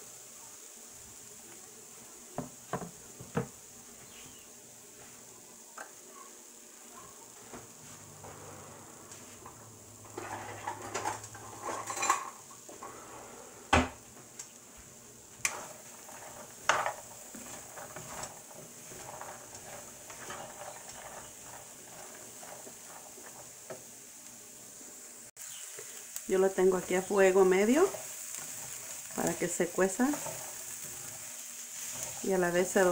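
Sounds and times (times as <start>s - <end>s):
faint sizzle: 0.0s - 32.9s
corn kernels scraping and rustling: 7.2s - 13.6s, 14.5s - 24.8s, 25.4s - 32.9s.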